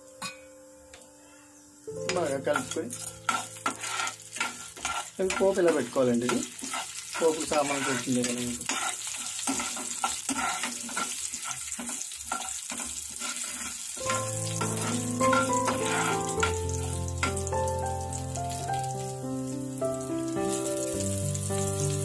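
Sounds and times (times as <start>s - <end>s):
seeds sizzling in hot oil: 0.0s - 22.0s
spoon stirring in pan: 2.1s - 18.1s.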